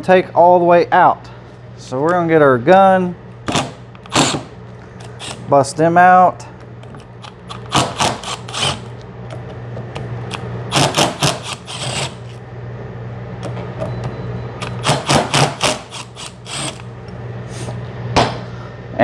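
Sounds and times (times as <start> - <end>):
impact driver rapid knocks: 10.7 - 12.1, 14.8 - 16.1.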